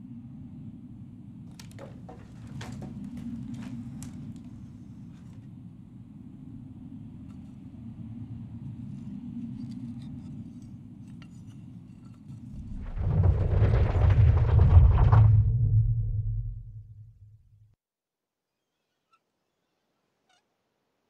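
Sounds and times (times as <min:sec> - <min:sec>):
deep rumble: 0:12.5 - 0:17.7
loud rushing noise: 0:12.6 - 0:17.0.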